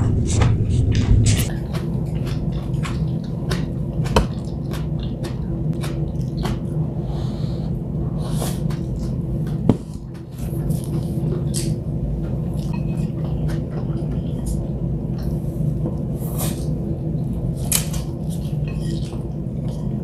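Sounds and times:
steady low hum: 0:00.0 - 0:20.0
chewing with wet mouth clicks: 0:01.5 - 0:06.9, 0:08.6 - 0:20.0
chopsticks against dishes: 0:08.6 - 0:15.3, 0:17.6 - 0:19.8.

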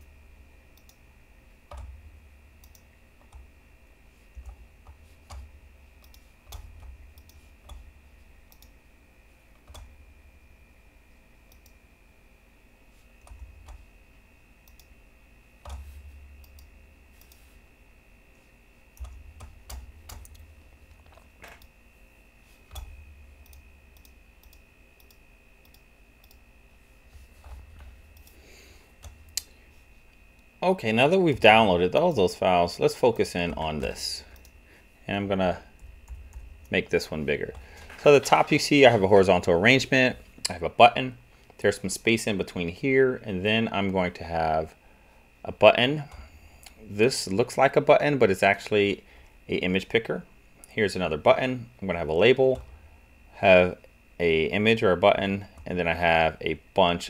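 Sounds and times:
faint high whine: 0:00.0 - 0:57.0
computer mouse clicks: 0:00.8 - 0:01.0, 0:02.6 - 0:03.5, 0:04.4 - 0:07.9, 0:08.5 - 0:08.8, 0:11.5 - 0:11.8, 0:14.6 - 0:14.9, 0:15.6 - 0:17.4, 0:22.7 - 0:26.4.

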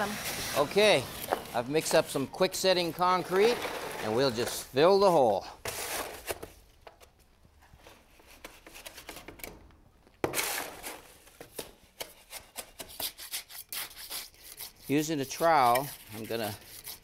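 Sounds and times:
shovel scraping concrete: 0:00.0 - 0:06.5, 0:10.3 - 0:11.1, 0:12.2 - 0:17.0.

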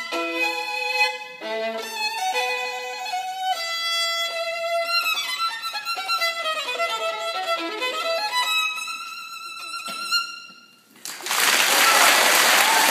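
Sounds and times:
solo violin playing: 0:00.0 - 0:10.6
audience applause: 0:11.0 - 0:12.9.

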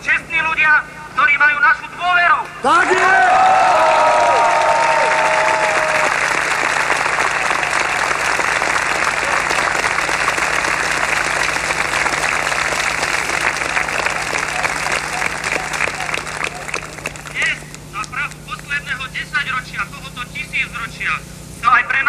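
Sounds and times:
crowd shouting: 0:02.6 - 0:06.2
crowd applauding: 0:02.8 - 0:18.7.

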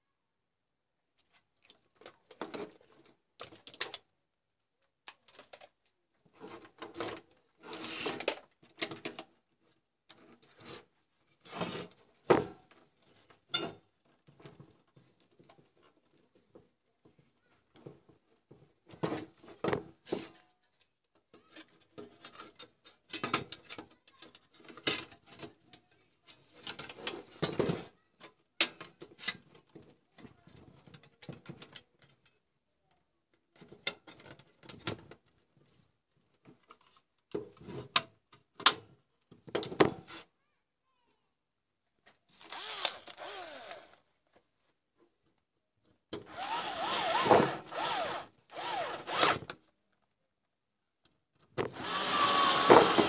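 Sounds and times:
clicks and knocks of handling parts: 0:01.2 - 0:04.1, 0:04.8 - 0:07.4, 0:12.3 - 0:32.4
wires pushed inside a case: 0:51.6 - 0:53.0.

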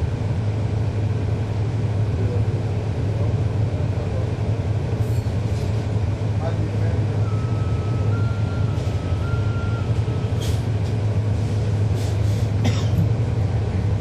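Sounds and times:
diesel bus engine drone: 0:00.0 - 0:14.0
short hisses: 0:10.4 - 0:10.7, 0:11.4 - 0:12.6.

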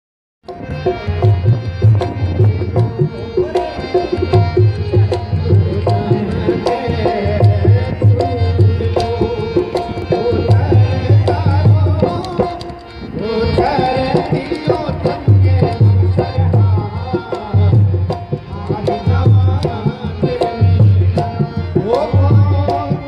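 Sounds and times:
hand drum beat: 0:00.5 - 0:12.8
pitch-bending melody: 0:00.5 - 0:19.2.

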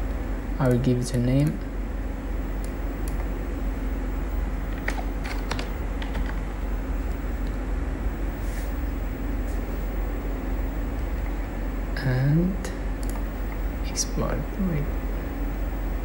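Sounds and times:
steady low hum: 0:00.0 - 0:16.0
keyboard keystrokes: 0:04.7 - 0:06.4.

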